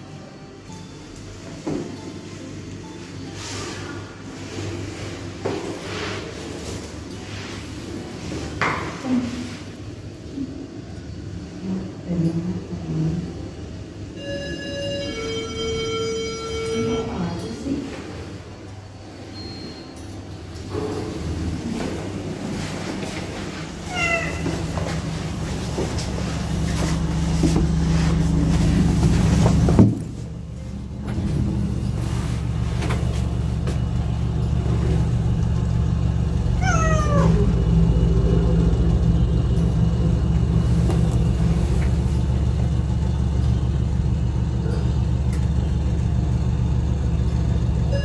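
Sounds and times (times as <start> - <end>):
steady low hum: 0.0 - 48.0
cat meowing: 23.9 - 24.6, 36.6 - 37.6.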